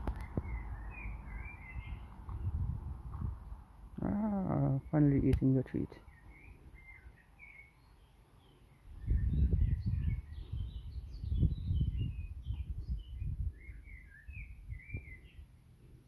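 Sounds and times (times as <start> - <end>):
low rumbling on microphone: 0.0 - 5.0, 8.9 - 15.5
small birds chirping: 0.0 - 16.0.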